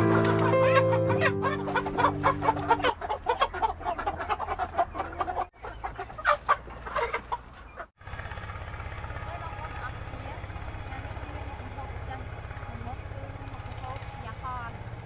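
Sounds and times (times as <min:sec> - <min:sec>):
chickens clucking and squawking: 0:00.0 - 0:08.0.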